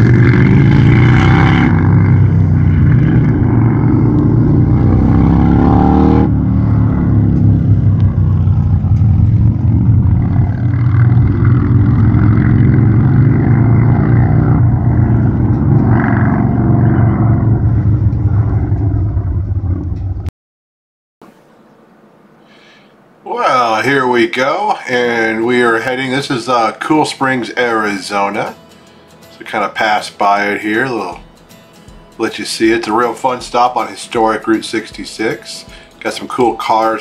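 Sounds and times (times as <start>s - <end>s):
motorcycle engines revving: 0.0s - 20.2s.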